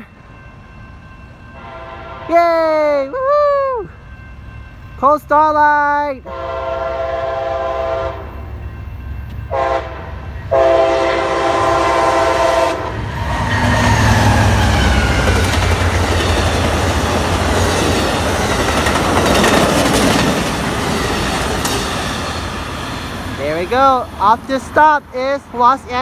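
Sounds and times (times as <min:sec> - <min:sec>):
locomotive rumbling past: 0:00.0 - 0:26.0
passenger cars rolling on rails: 0:00.0 - 0:26.0
locomotive horn blasts: 0:01.6 - 0:02.3, 0:06.2 - 0:08.3, 0:09.5 - 0:13.5.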